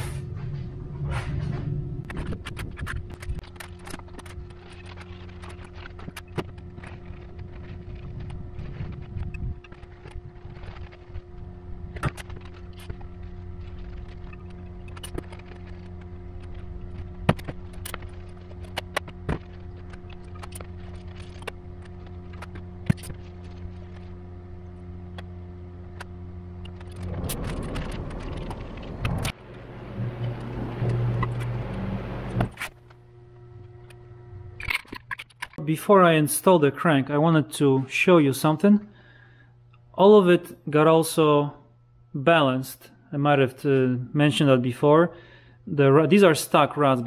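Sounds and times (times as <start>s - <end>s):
low machine hum: 0.0s - 47.0s
metal parts scraping: 26.6s - 29.4s, 34.6s - 35.6s.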